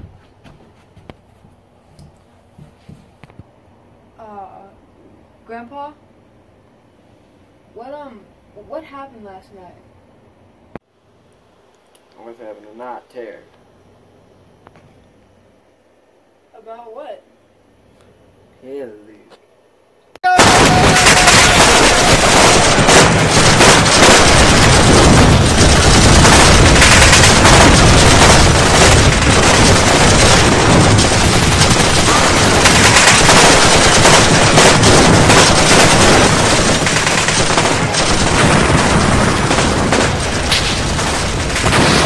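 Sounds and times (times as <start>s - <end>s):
machine-gun bursts: 20.4s - 42.0s
rifle shots: 20.4s - 42.0s.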